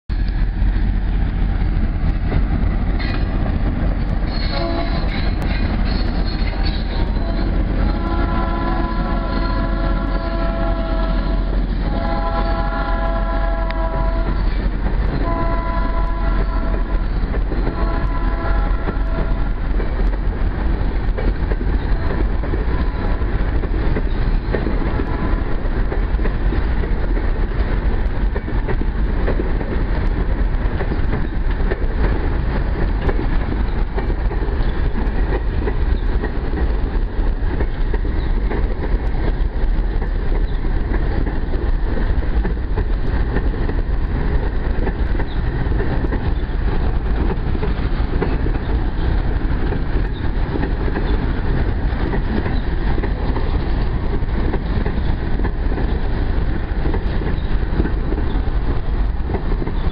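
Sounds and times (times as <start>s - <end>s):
diesel train rumbling: 0.1s - 59.9s
train horn blasts: 4.3s - 19.7s, 21.8s - 23.4s, 24.8s - 25.7s.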